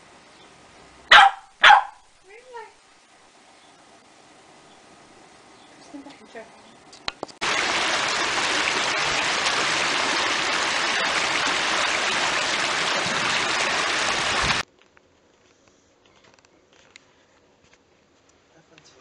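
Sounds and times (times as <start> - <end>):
water rushing over rocks: 7.4 - 14.6.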